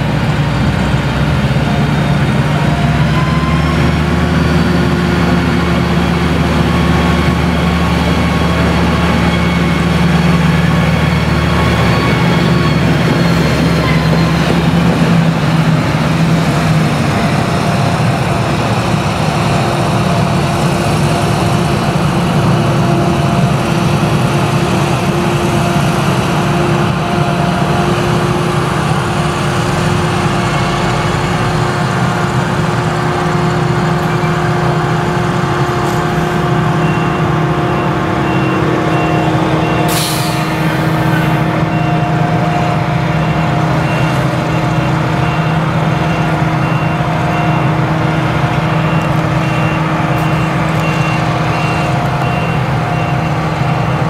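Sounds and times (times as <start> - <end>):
harvester engine droning: 0.0 - 54.0
high beeps: 48.8 - 54.0.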